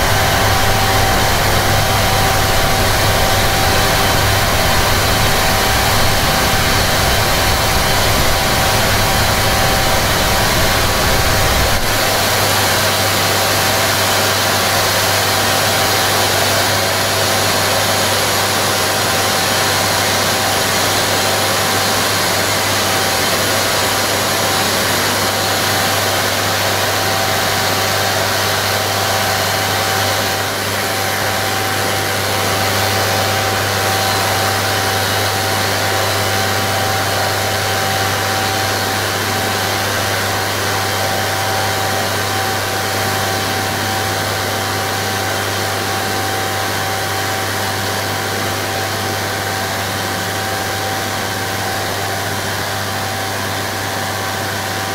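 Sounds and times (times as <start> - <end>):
mid-pitched whine: 0.0 - 13.8.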